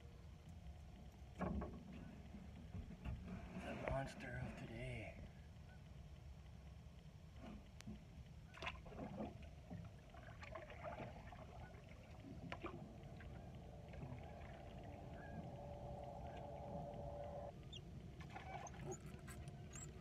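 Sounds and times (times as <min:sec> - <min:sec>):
canoe paddle moving: 0:08.6 - 0:20.0
steady low hum: 0:09.4 - 0:20.0.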